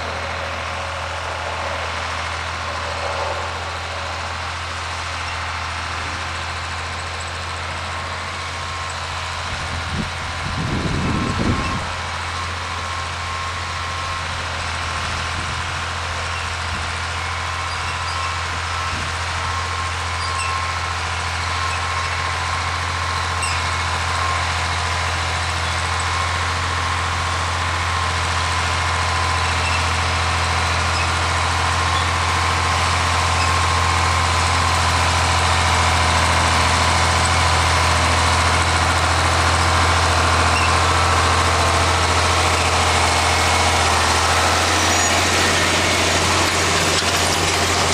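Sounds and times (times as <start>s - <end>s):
tractor engine running under load: 0.0s - 47.9s.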